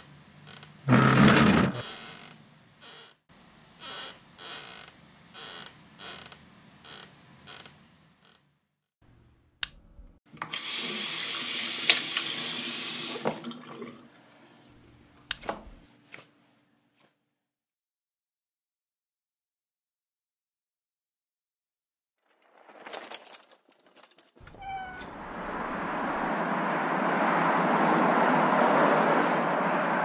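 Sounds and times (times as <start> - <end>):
tap running into washbasin: 10.4 - 14.0.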